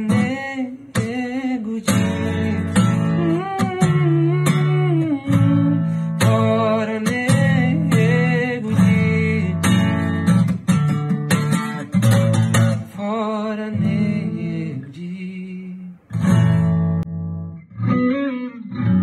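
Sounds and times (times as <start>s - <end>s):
man singing: 0.0s - 10.5s, 11.3s - 16.5s
strummed acoustic guitar: 0.0s - 18.1s.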